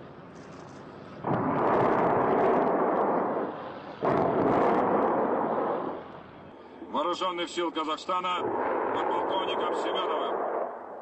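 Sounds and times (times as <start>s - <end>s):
explosion blast with rumble: 1.2s - 6.1s, 8.4s - 11.0s.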